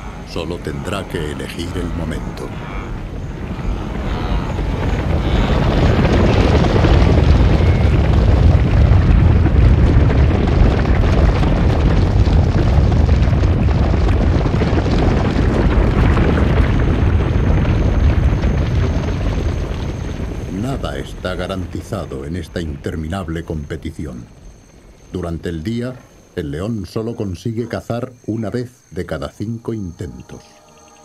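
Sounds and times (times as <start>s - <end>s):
herd hooves galloping on dry ground: 0.0s - 25.3s.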